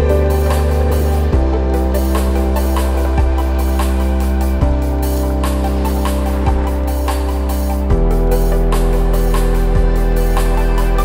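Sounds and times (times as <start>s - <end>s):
low beat: 0.0s - 11.0s
sustained music chords: 0.0s - 11.0s.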